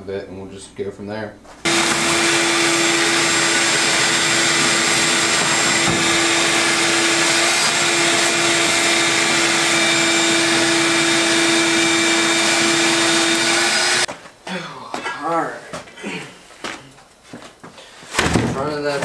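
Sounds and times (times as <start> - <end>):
shop vacuum running: 1.6 - 14.1
vacuum nozzle sucking debris: 1.7 - 14.1.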